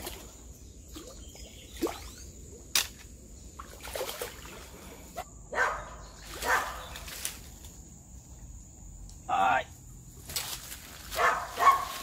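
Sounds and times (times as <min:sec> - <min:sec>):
dog barking: 0:05.5 - 0:06.9, 0:11.2 - 0:12.0.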